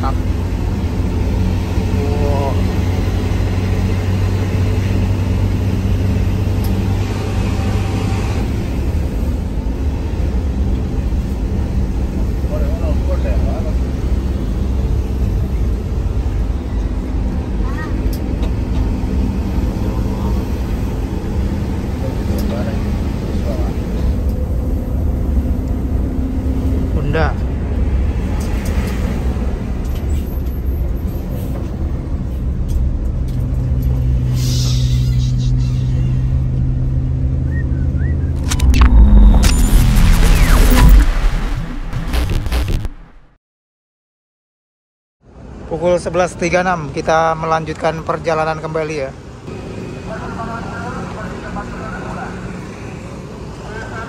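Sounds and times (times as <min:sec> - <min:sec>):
bus engine rumbling: 0:00.0 - 0:41.5
road noise: 0:00.0 - 0:43.3, 0:45.2 - 0:54.0.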